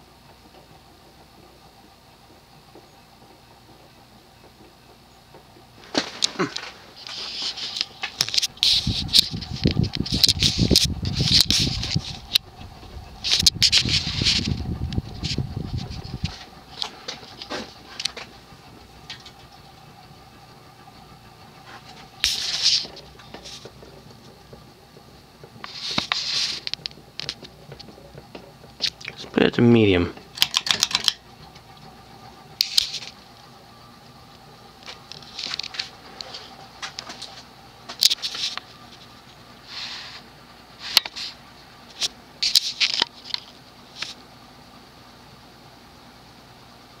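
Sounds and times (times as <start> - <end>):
ceiling fan motor hum: 0.0 - 47.0
rustling noise: 5.8 - 29.4, 34.8 - 44.3.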